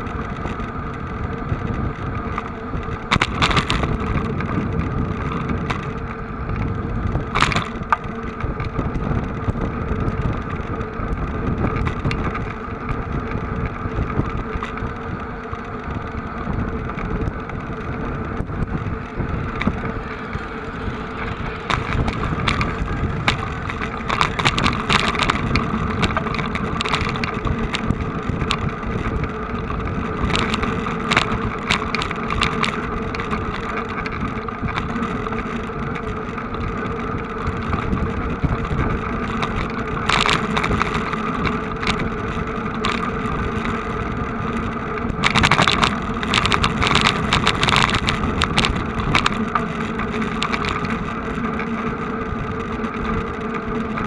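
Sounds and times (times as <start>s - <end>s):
crackly noise bursts: 0.0s - 54.0s
vehicle engine running: 0.0s - 54.0s.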